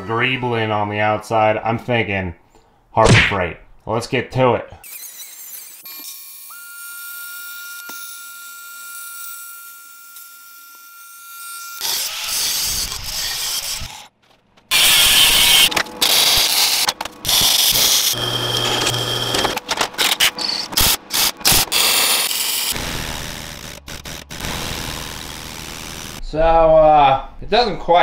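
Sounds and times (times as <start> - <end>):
angle grinder on steel: 4.8 - 14.1, 14.7 - 26.2
drill press boring through steel: 14.7 - 19.6.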